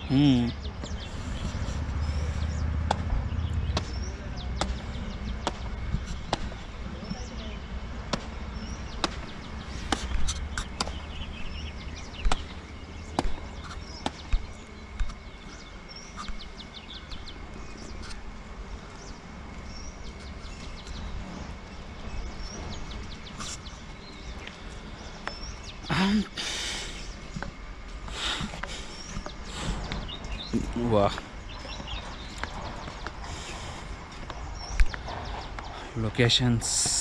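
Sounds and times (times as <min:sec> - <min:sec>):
wind rumble on microphone: 0:00.0 - 0:25.8.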